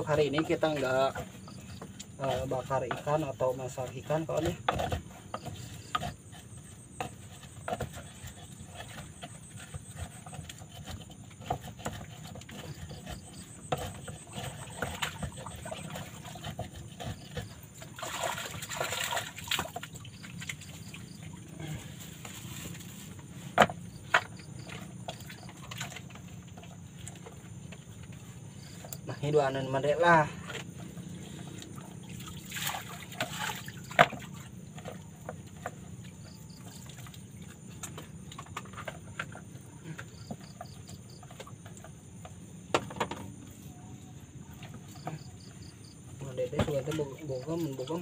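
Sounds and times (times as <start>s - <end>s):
rustling: 0.0s - 29.2s
crickets chirping: 0.0s - 48.0s.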